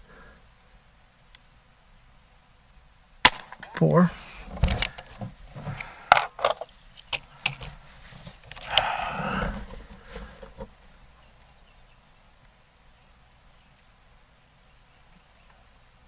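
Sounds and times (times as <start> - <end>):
rustling: 3.2 - 11.6.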